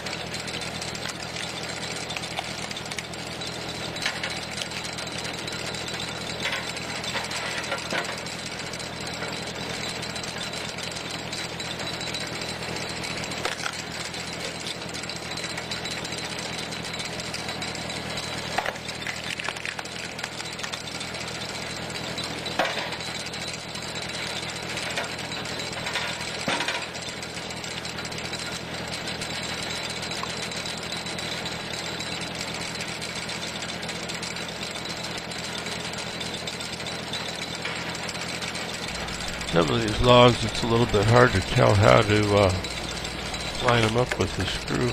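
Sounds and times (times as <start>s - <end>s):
tractor engine running: 0.0s - 44.9s
log cracking and splitting: 13.4s - 13.9s, 18.6s - 21.0s.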